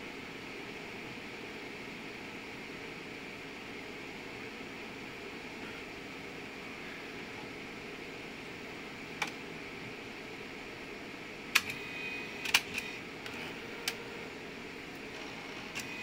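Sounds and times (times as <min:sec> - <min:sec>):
machine humming: 0:00.0 - 0:16.0
sharp mechanical clicks: 0:11.5 - 0:11.8, 0:12.4 - 0:14.0.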